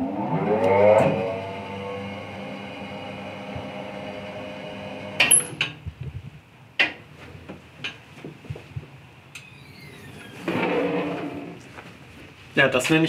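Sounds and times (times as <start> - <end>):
wheel balancing machine humming: 0.0 - 5.6.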